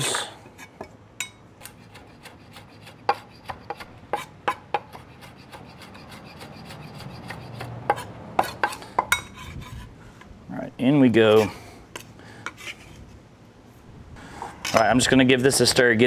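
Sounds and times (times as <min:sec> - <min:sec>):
knife chopping on wooden board: 0:03.1 - 0:05.6.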